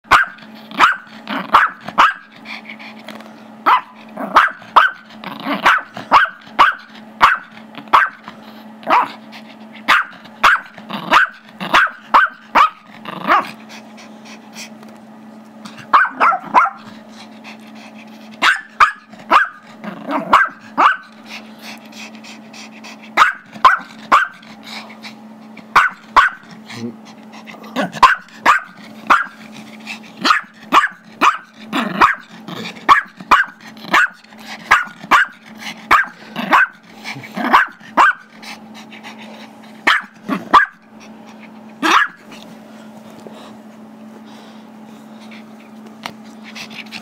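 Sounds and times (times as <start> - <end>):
steady low hum: 0.0 - 47.0
small dog barking: 0.1 - 2.3, 3.6 - 8.2, 8.8 - 9.2, 9.9 - 13.5, 15.8 - 16.9, 18.4 - 21.1, 23.2 - 24.4, 25.7 - 26.4, 27.9 - 29.4, 30.2 - 32.3, 32.9 - 36.8, 37.4 - 38.3, 39.8 - 40.8, 41.8 - 42.2.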